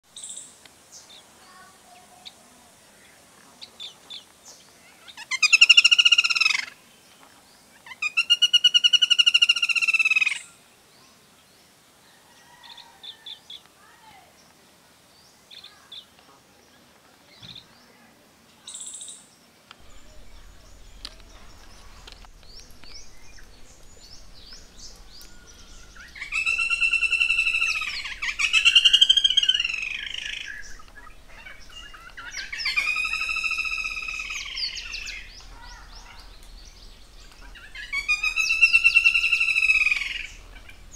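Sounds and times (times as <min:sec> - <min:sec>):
woodpecker calls: 0:05.1 - 0:06.8, 0:07.8 - 0:10.6, 0:19.8 - 0:40.9
faint bird chirps: 0:15.2 - 0:40.9.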